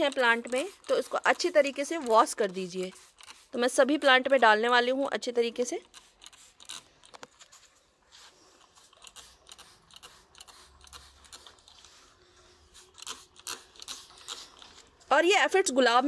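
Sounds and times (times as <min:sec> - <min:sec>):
trigger sprayer clicking and spritzing: 0:00.0 - 0:04.8, 0:05.6 - 0:07.3, 0:08.6 - 0:12.0, 0:12.8 - 0:14.9.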